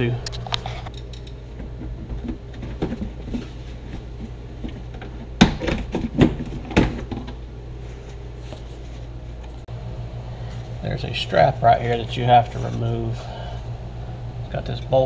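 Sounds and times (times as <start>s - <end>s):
steady low hum: 0.0s - 15.0s
plastic panel knocking and clattering: 4.6s - 7.4s.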